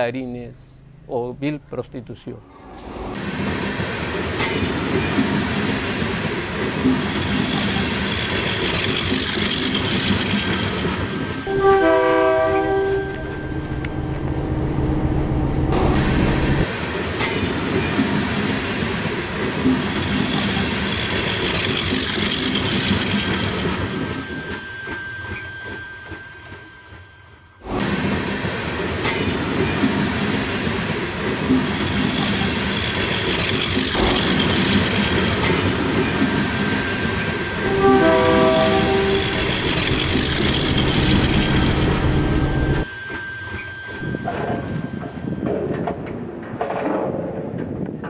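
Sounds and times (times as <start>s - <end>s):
heavy vehicle rumble: 13.0s - 16.7s.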